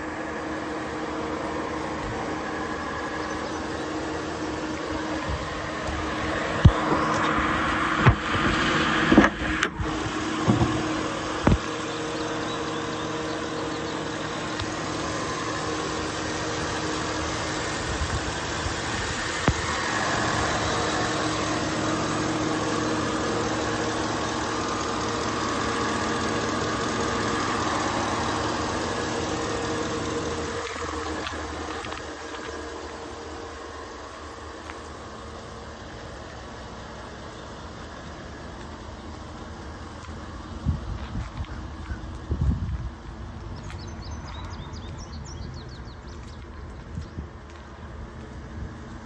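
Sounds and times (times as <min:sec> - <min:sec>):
car engine idling: 0:00.0 - 0:49.0
hood clunks: 0:05.2 - 0:11.8.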